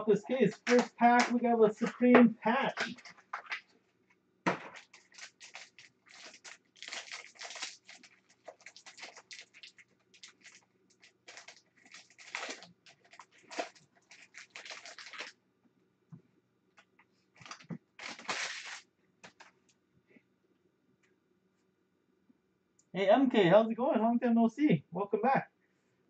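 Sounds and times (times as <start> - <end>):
foil wrapper crinkling and tearing: 0.4 - 1.4, 4.5 - 15.3, 17.4 - 19.5.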